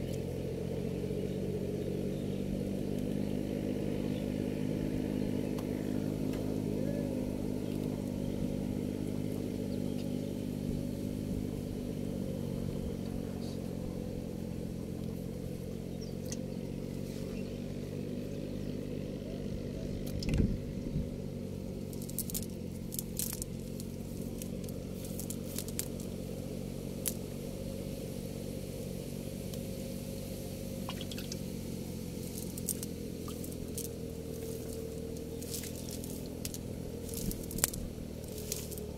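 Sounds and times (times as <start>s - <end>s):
engine humming: 0.0s - 38.9s
fishing net clicking and rustling: 21.8s - 26.1s, 32.2s - 38.9s.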